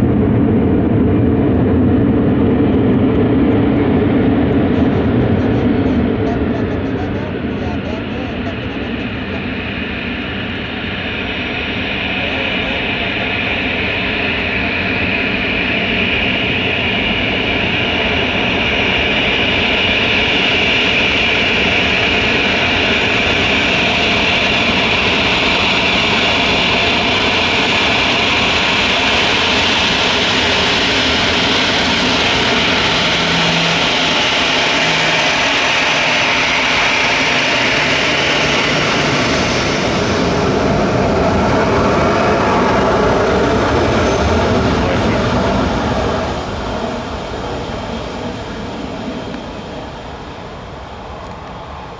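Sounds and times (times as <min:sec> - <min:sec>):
jet engines roaring with whine: 0:00.0 - 0:51.9.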